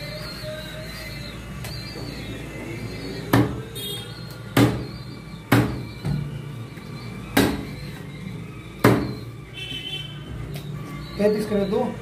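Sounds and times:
cleaver chopping on wooden block: 0:04.6 - 0:04.8, 0:05.5 - 0:05.8.

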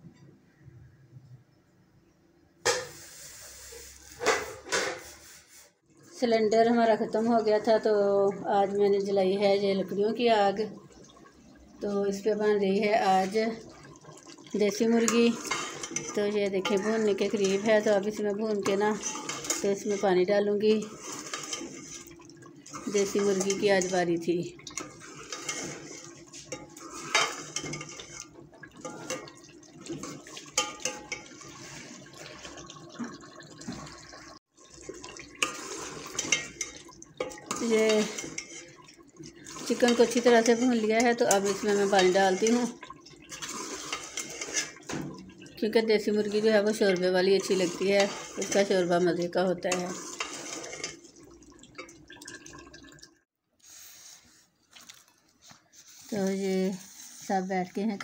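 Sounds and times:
curry sizzling and bubbling: 0:02.6 - 0:58.0
metal ladle scraping a pot: 0:14.8 - 0:32.7, 0:34.8 - 0:51.3.

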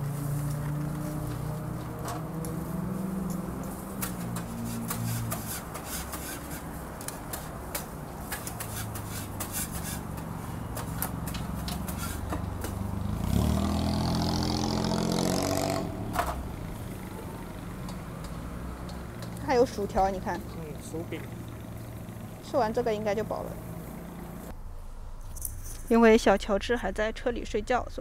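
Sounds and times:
vehicle passing close by: 0:00.0 - 0:25.2
street traffic hum: 0:00.0 - 0:28.0
tongs scraping metal griddle: 0:03.8 - 0:12.8.

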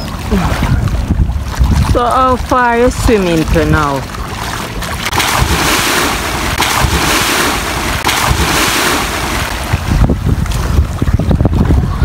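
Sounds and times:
swimming splashes: 0:00.0 - 0:12.0
wind rumbling on microphone: 0:00.0 - 0:12.0
man diving into water: 0:03.5 - 0:12.0.

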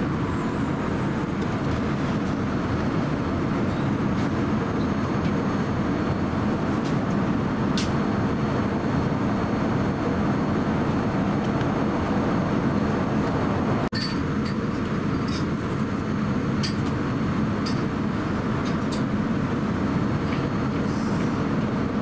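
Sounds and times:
airliner cabin rushing noise: 0:00.0 - 0:13.9.

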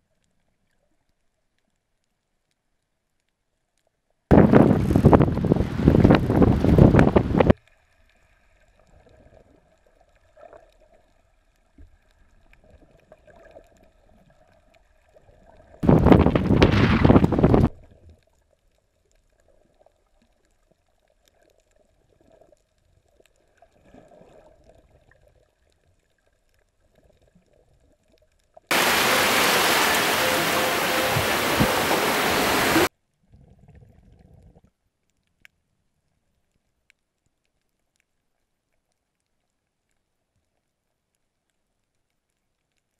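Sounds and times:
rush of water and wind: 0:04.3 - 0:07.6, 0:15.8 - 0:17.7, 0:28.7 - 0:32.9.

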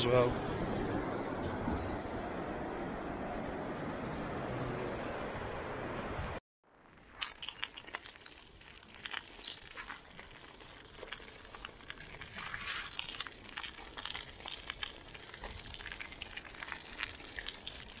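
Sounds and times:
bike tyres crackling on gravel: 0:06.7 - 0:18.0.

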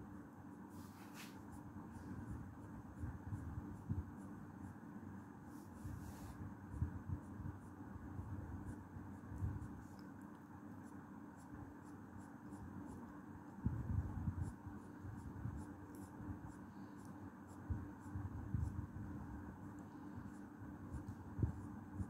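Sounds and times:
marker scribbling on paper: 0:05.4 - 0:22.0.

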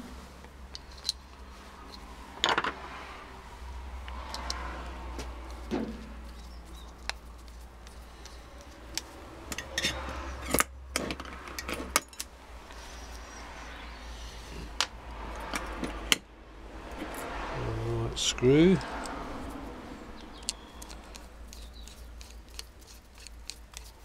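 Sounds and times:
metal parts clicking and knocking: 0:00.7 - 0:02.8, 0:05.5 - 0:12.3, 0:20.2 - 0:24.0
rustling: 0:05.2 - 0:09.4, 0:20.4 - 0:24.0.

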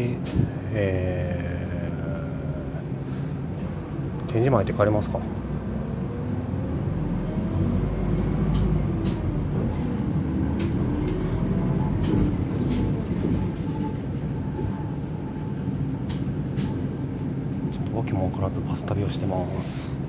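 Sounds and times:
bus engine and road rumble: 0:00.0 - 0:20.0.

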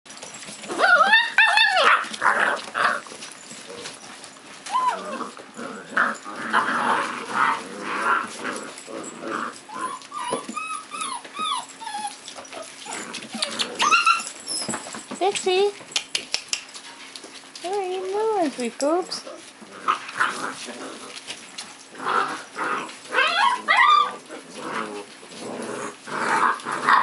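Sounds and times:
puppies yelping: 0:00.1 - 0:15.1, 0:18.8 - 0:27.0
puppies growling and scuffling: 0:00.1 - 0:27.0
puppies yipping and whining: 0:00.1 - 0:27.0.

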